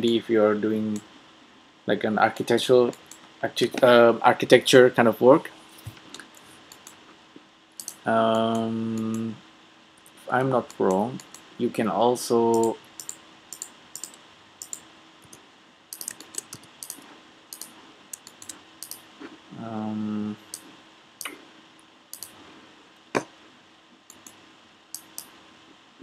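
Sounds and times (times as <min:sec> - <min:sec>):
mouse and keyboard clicks: 0:06.2 - 0:07.0, 0:07.8 - 0:09.3, 0:12.5 - 0:19.0, 0:22.1 - 0:22.4, 0:24.1 - 0:24.4, 0:25.0 - 0:25.3.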